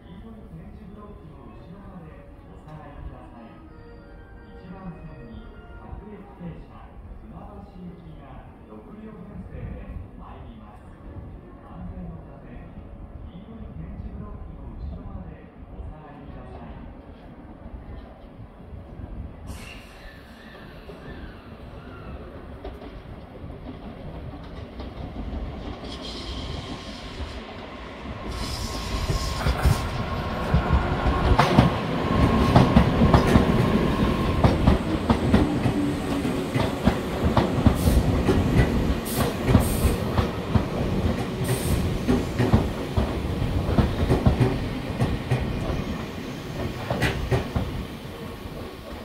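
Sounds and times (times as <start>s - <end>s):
steady high train tone: 0.0s - 49.0s
electric train arriving: 19.5s - 49.0s.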